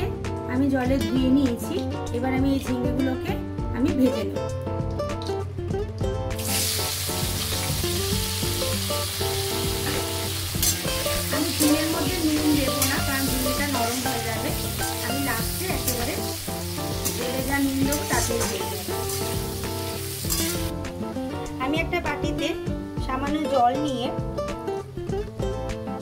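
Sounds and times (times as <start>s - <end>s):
vegetables sizzling in hot oil: 6.3s - 22.9s
metal spatula scraping a pan: 20.2s - 20.7s.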